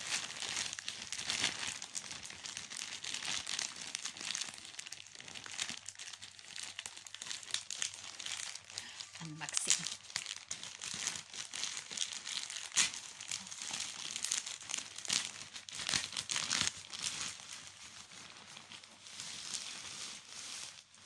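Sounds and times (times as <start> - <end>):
plastic pouch crinkling and tearing: 0.0 - 21.0.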